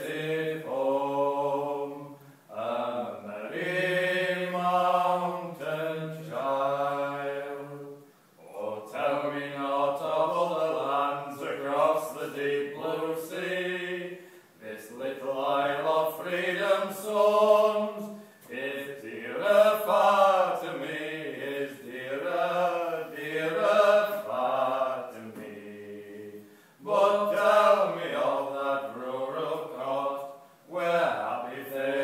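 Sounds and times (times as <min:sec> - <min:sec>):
two men singing unaccompanied: 0:00.0 - 0:32.0.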